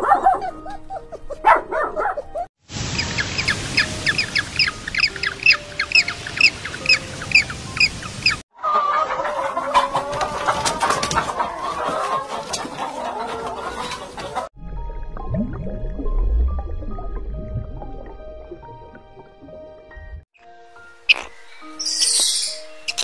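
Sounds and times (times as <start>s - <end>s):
bird chirping: 3.0s - 8.4s, 21.1s - 23.0s
hens clucking: 3.4s - 14.5s.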